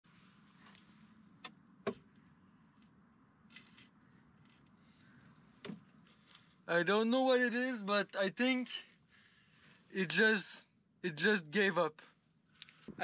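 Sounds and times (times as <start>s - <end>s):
brief rustle: 12.5s - 13.0s.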